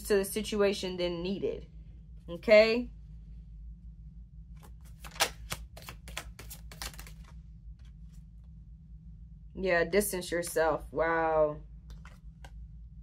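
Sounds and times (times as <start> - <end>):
low steady hum: 0.0 - 13.0
cards being shuffled: 4.5 - 8.3, 11.9 - 12.6.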